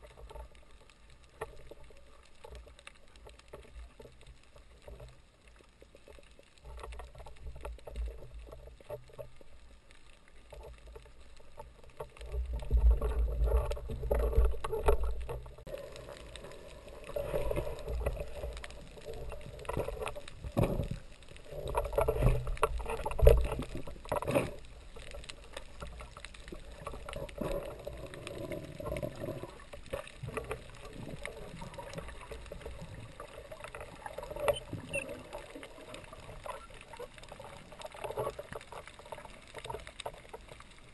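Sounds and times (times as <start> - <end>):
muffled underwater sloshing: 0.0 - 40.9.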